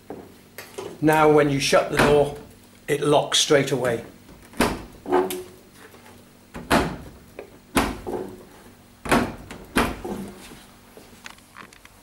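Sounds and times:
tumble dryer door catch clunks: 1.9s - 2.5s, 4.3s - 5.4s, 6.6s - 8.3s, 9.0s - 10.2s.

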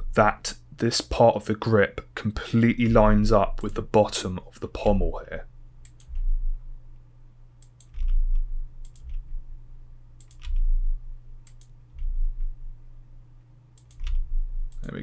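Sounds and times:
low electrical hum: 0.0s - 15.0s
mouse and keyboard clicks: 7.6s - 9.2s, 10.2s - 10.7s, 13.8s - 15.0s.

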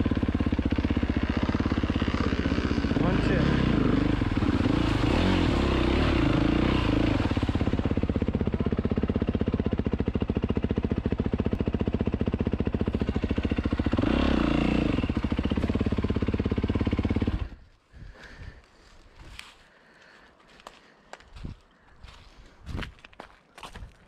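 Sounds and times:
dirt bike engine revving and idling: 0.0s - 18.5s.

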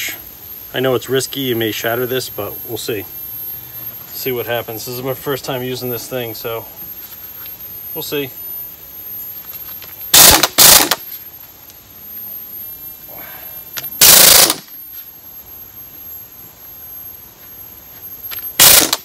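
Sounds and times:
air impact wrench hammering: 10.1s - 11.0s, 14.0s - 14.7s, 18.6s - 19.0s.

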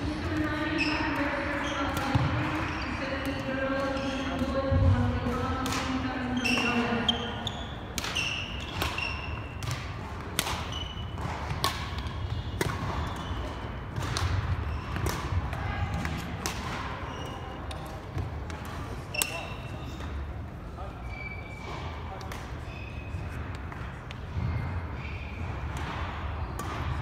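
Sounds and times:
shoes squeaking on hardwood floor: 6.3s - 9.6s
racket hitting shuttlecock: 7.9s - 19.4s.

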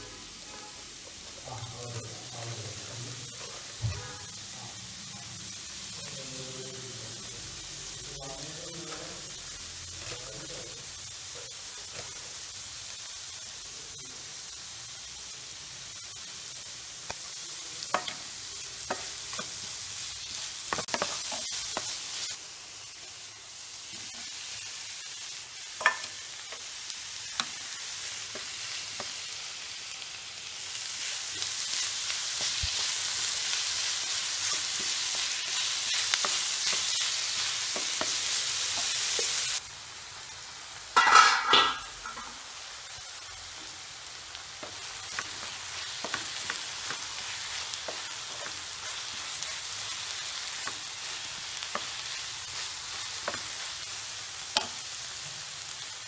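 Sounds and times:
onions sizzling in a frying pan: 0.0s - 56.0s
metal lid clatter: 41.0s - 42.3s.

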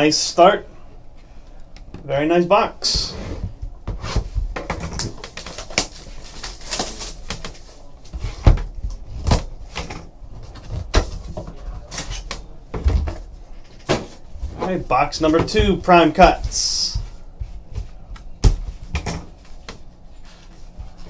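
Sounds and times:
cardboard rustling and scraping: 2.9s - 12.5s.

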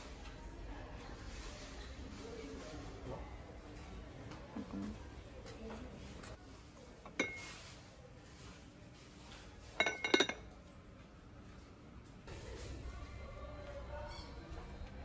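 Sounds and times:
ceramic lid clinking on pot: 7.1s - 7.5s, 9.8s - 10.4s.

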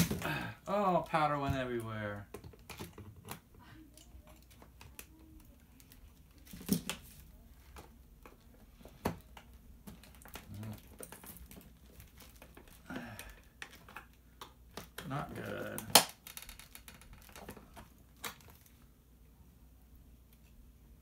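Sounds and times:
plastic clicks and creaks: 1.8s - 18.8s
plastic bag crinkling: 9.9s - 13.1s
sharp plastic snaps: 13.6s - 18.7s.

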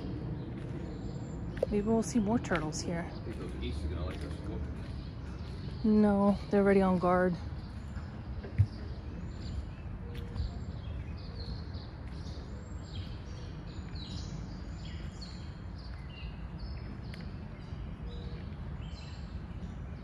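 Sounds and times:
low outdoor rumble: 0.0s - 20.0s
songbirds chirping: 0.0s - 20.0s.

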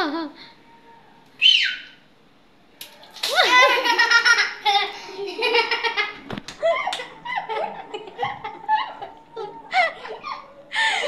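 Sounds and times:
boy laughing and giggling: 3.3s - 11.0s.

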